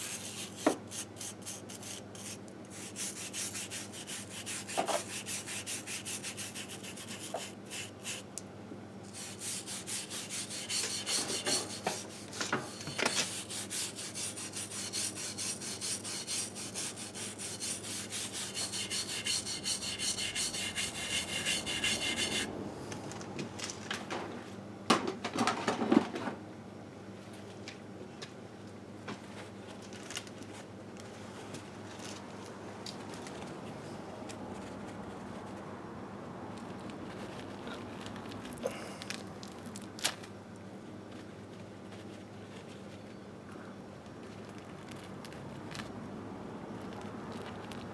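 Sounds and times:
brush scrubbing metal: 0.0s - 8.3s, 9.1s - 22.5s.

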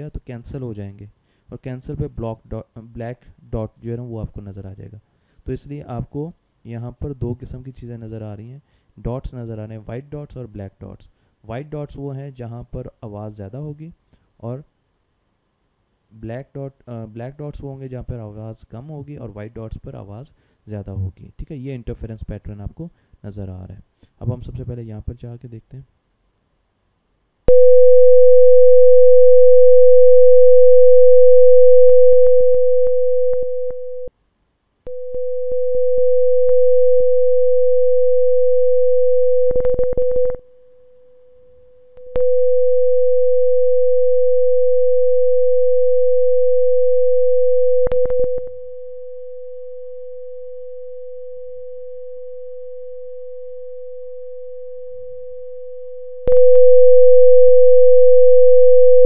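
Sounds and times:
steady sine tone: 27.5s - 34.1s, 34.9s - 59.0s.

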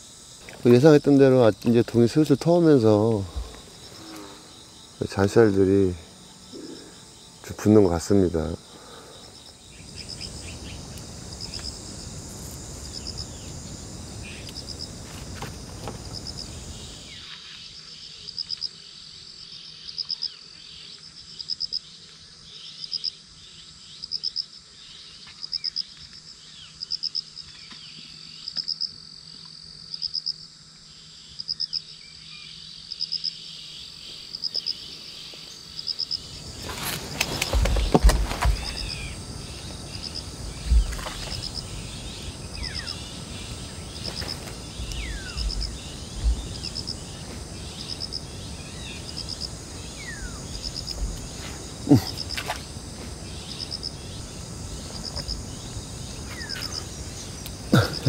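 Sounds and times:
insect chirping: 0.0s - 58.0s
rustling: 36.4s - 39.2s
low thumps: 40.6s - 41.5s, 44.2s - 47.4s.

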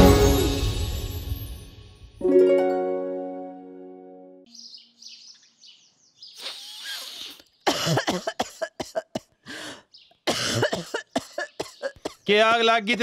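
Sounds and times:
faint bird chirps: 4.5s - 7.7s
woman coughing: 7.6s - 9.4s, 10.3s - 12.2s.

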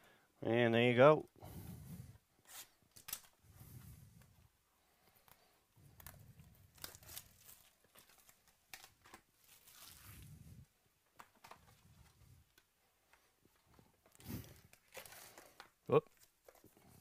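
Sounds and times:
cellophane crinkling and tearing: 2.5s - 3.4s, 5.2s - 10.4s, 14.0s - 16.9s
card packs handled: 5.1s - 10.4s, 11.1s - 17.0s.

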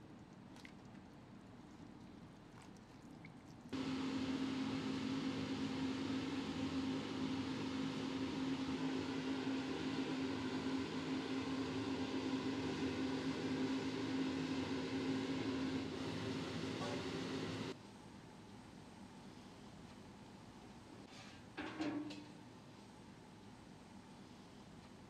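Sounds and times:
kitchen equipment humming: 3.8s - 17.8s.

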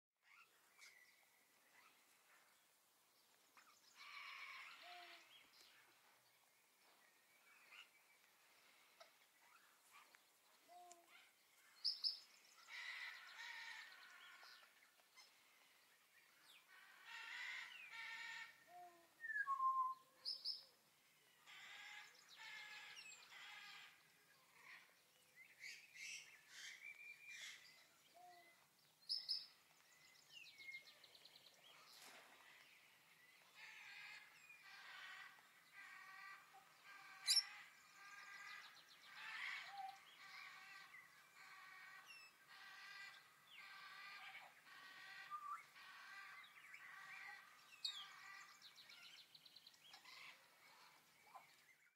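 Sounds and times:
high whistled bird notes: 19.2s - 20.1s
birds chattering: 21.5s - 51.6s.

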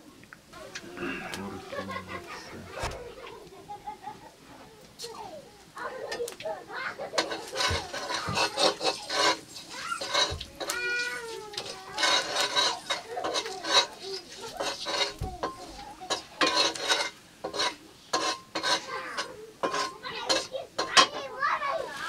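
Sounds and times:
chicken frying: 0.0s - 22.0s
metal spatula scraping iron wok: 7.2s - 21.2s.

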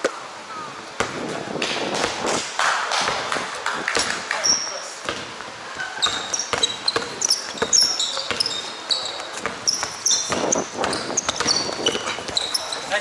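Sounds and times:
basketball bouncing: 1.0s - 2.4s, 3.0s - 12.7s
sneakers squeaking on court floor: 4.0s - 13.0s.

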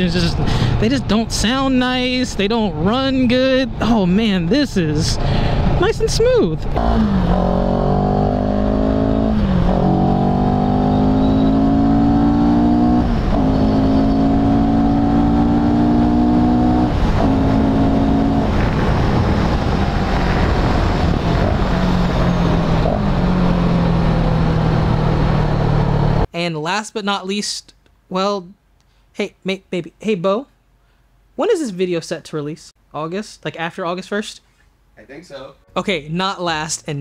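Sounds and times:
motorcycle engine accelerating: 5.5s - 26.3s
wind rush: 16.4s - 26.2s.

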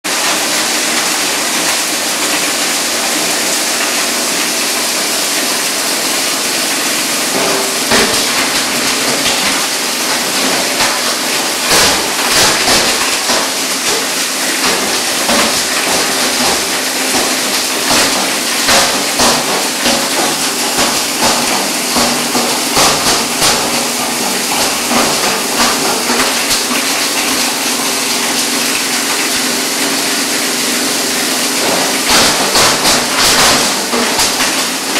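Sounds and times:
pipe grinder running: 0.0s - 34.9s
plastic pipe cracking and clattering: 31.6s - 34.9s.

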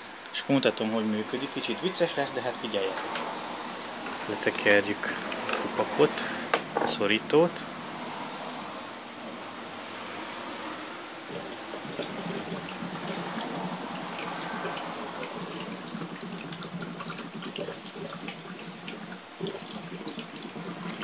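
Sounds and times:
gas bubbling through water: 11.2s - 21.0s.

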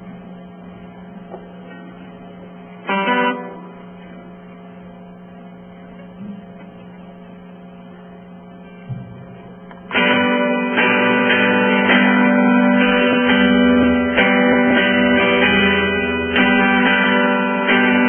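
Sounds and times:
electrical mains hum: 0.0s - 18.0s
acoustic guitar chords: 2.8s - 4.6s, 8.7s - 18.0s.

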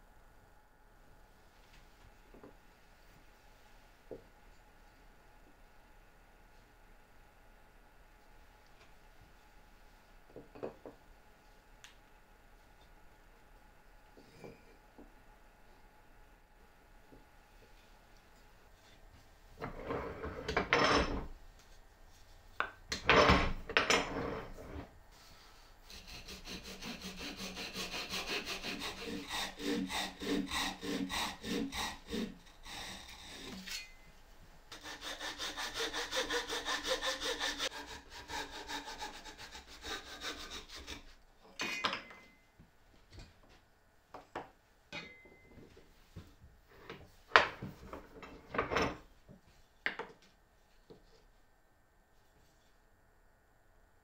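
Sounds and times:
handsaw cutting wood: 25.9s - 33.8s, 34.7s - 41.1s.

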